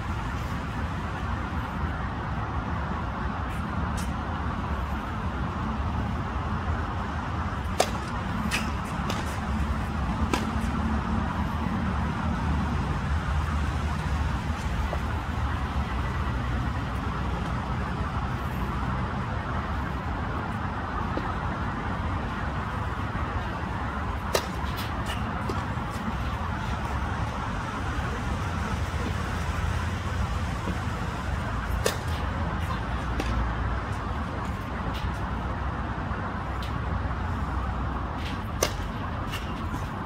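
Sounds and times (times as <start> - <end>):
distant traffic hum: 0.0 - 40.0
tennis racket striking ball: 7.6 - 9.4, 10.2 - 10.8, 24.3 - 25.7, 38.6 - 39.5
tennis ball bouncing knocks: 7.8 - 9.4, 10.2 - 10.6, 24.3 - 24.8.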